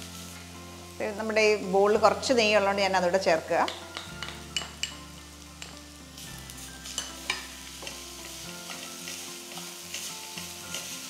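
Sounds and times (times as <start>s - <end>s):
food sizzling in hot ghee: 0.0s - 11.0s
spatula stirring in a pan: 6.6s - 11.0s.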